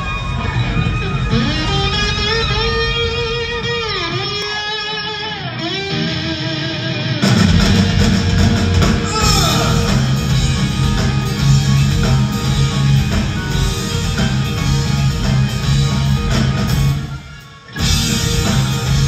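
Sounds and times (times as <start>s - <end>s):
rock band playing loudly: 0.0s - 19.0s
electric guitar bending notes: 5.0s - 16.2s.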